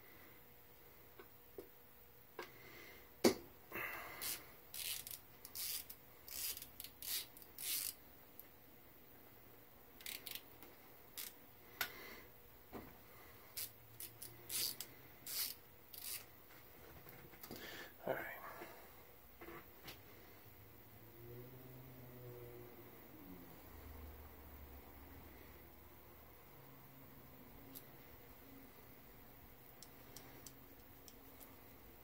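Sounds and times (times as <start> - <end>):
hand driver clicking and scraping: 4.2 - 8.0, 13.6 - 16.3.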